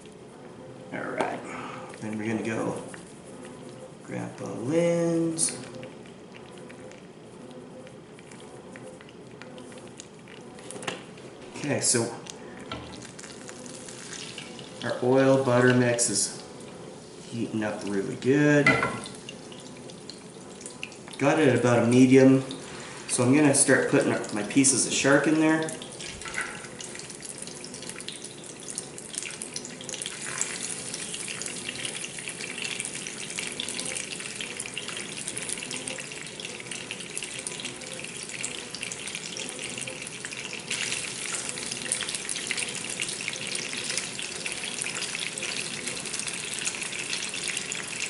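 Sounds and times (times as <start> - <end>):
fish sizzling in oil: 13.0 - 14.9, 26.3 - 48.0.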